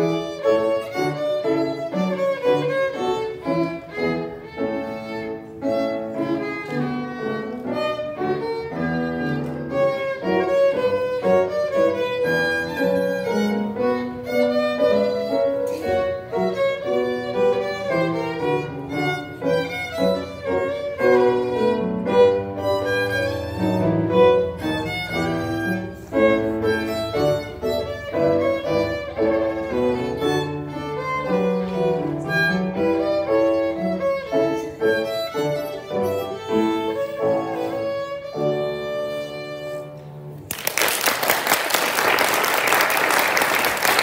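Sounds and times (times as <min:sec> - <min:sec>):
solo violin playing: 0:00.0 - 0:40.4
audience applause: 0:40.4 - 0:44.0.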